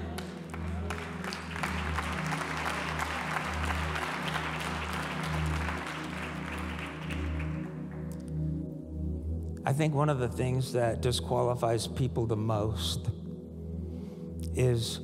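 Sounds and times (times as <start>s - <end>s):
audience applauding: 0.0s - 8.2s
soft background music: 0.0s - 15.0s.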